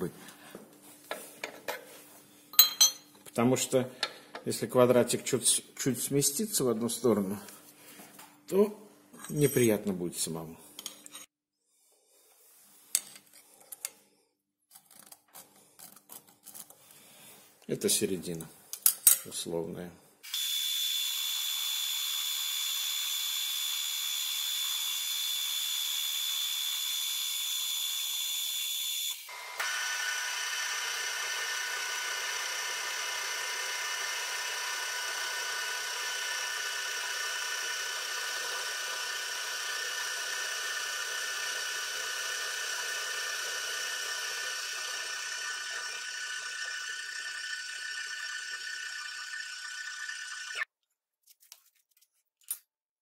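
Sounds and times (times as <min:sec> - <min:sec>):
milling machine high whine: 0:29.1 - 0:50.6.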